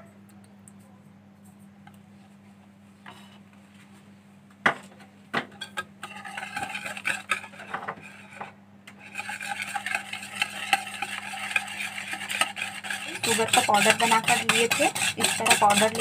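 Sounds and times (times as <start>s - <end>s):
whisk beating in a bowl: 6.0s - 16.0s.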